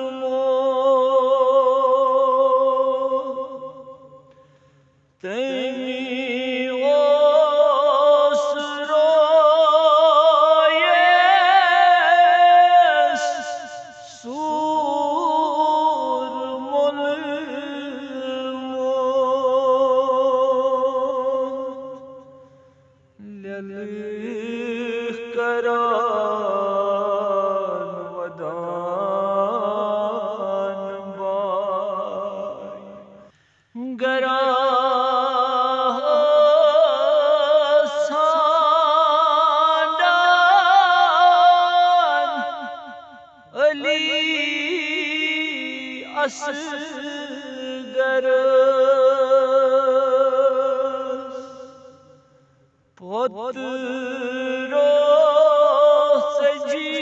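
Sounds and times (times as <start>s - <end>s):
man chanting a lament: 5.2s - 22.0s, 33.8s - 52.2s, 53.0s - 57.0s
man breathing: 33.3s - 33.8s.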